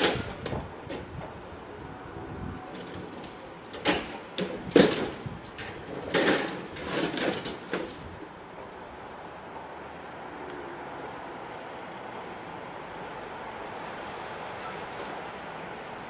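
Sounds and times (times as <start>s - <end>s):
boards banging into metal cage: 0.0s - 1.1s, 2.8s - 8.0s.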